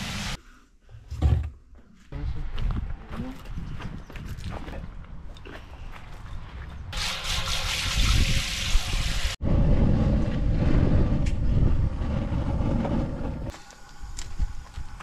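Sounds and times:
propane hissing: 0.0s - 0.4s.

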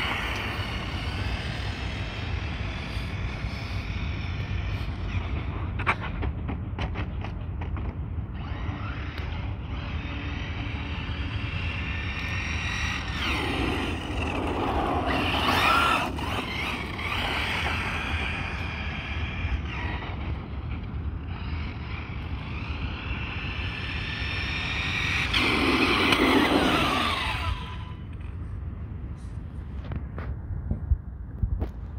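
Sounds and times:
electric motor whining: 8.4s - 20.6s, 21.2s - 28.2s.

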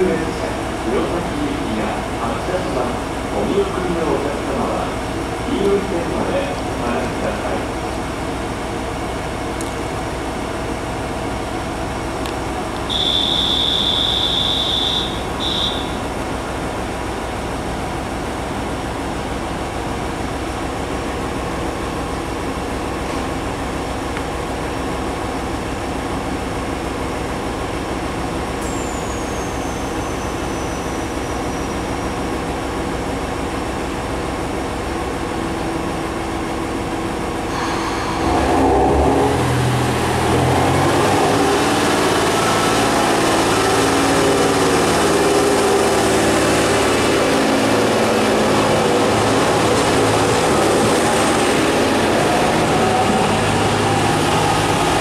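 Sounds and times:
diesel engine idling: 0.0s - 28.6s, 38.5s - 55.0s
high-pitched buzzer: 12.9s - 16.0s.

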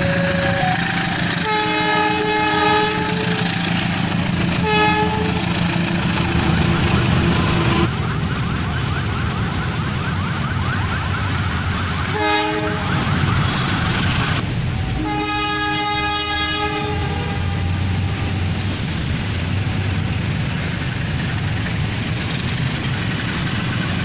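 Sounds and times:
locomotive horn: 0.0s - 3.9s, 4.5s - 5.8s, 12.1s - 13.1s, 15.0s - 18.6s
train noise: 0.0s - 24.0s.

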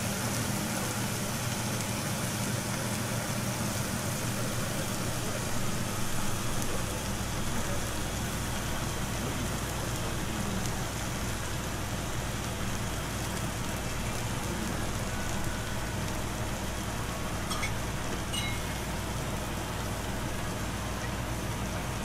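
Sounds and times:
hiss and low hum: 0.0s - 22.0s
faint light clinks: 17.5s - 19.0s.

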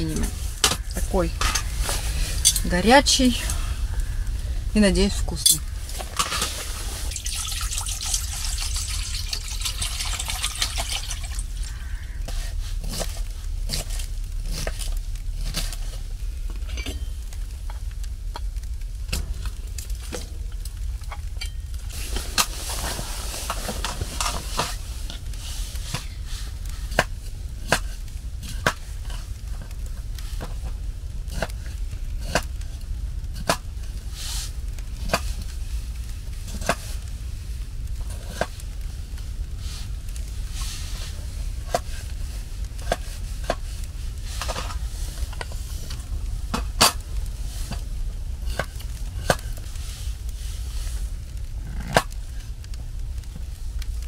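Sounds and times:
light sizzle: 0.0s - 54.0s
steady low rumble: 0.0s - 54.0s
sharp clicks and crackles: 11.0s - 54.0s.

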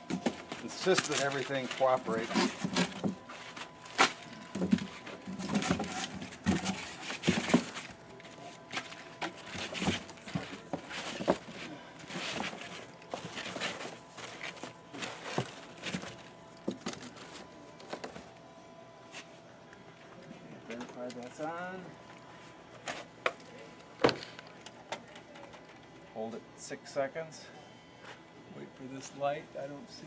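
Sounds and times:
foam rustling against cardboard: 0.2s - 18.2s.

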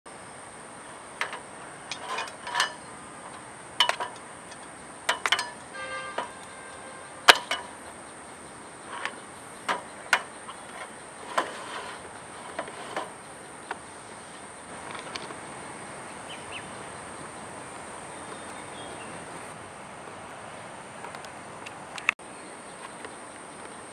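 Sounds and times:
short rattling: 1.0s - 15.4s
clicks of gas fittings: 1.2s - 6.6s, 7.2s - 7.9s.

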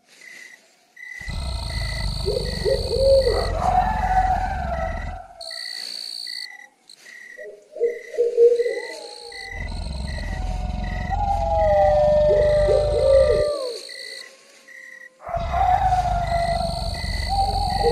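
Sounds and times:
insect-like chirps: 0.2s - 17.9s
hooting bird-like calls: 1.2s - 6.7s, 7.3s - 17.9s
low rumble: 9.5s - 13.5s.

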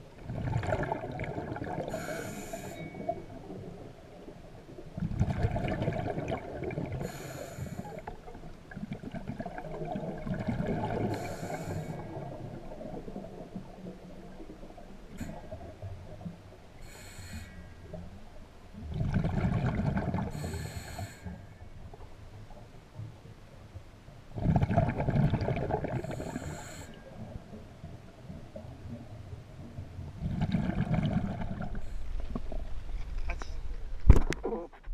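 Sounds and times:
underwater exhaled bubbles gurgling: 0.0s - 22.7s, 24.3s - 32.7s
diver exhaling bubbles: 0.2s - 2.7s, 5.0s - 7.2s, 18.9s - 20.7s, 24.4s - 26.6s, 30.2s - 32.4s
regulator hissing inhalations: 1.9s - 3.0s, 7.1s - 8.0s, 11.1s - 12.1s, 16.8s - 17.7s, 20.3s - 21.4s, 26.1s - 27.0s.

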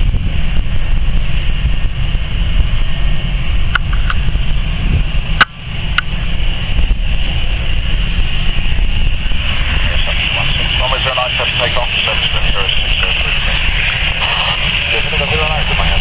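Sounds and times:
jet engines running: 0.0s - 16.0s
wind buffeting microphone: 0.0s - 16.0s
sharp clicks: 3.7s - 4.2s.

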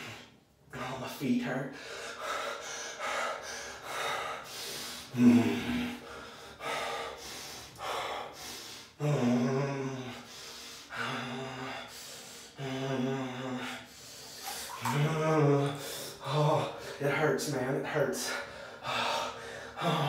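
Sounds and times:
man gasping and breathing hard: 1.7s - 14.9s
man moaning: 9.0s - 10.2s, 14.7s - 16.8s.

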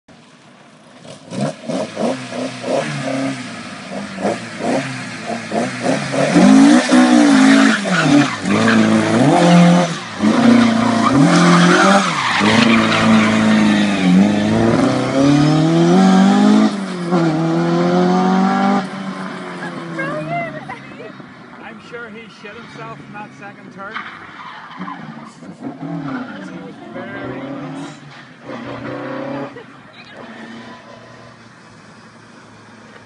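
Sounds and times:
car engine revving: 0.9s - 33.0s
tyres squealing on concrete: 7.0s - 14.6s, 23.8s - 31.0s.

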